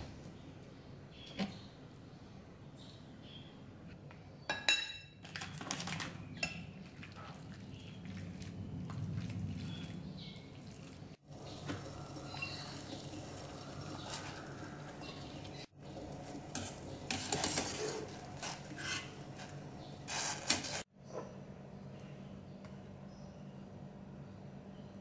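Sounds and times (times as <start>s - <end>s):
metal spoon clinking on ceramic bowl: 4.5s - 5.2s.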